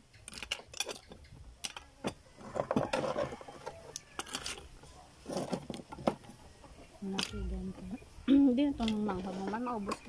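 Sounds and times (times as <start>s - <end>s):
oyster shells clicking and scraping: 0.0s - 7.5s.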